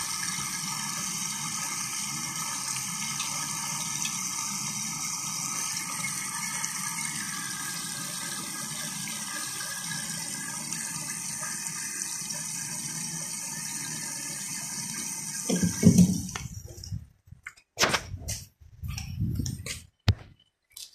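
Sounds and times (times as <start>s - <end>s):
oil washing up a hose: 15.4s - 17.0s.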